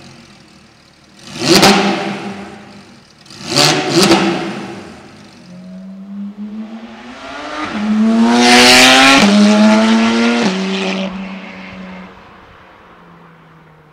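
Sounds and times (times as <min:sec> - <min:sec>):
sports car accelerating past: 0:05.5 - 0:13.2.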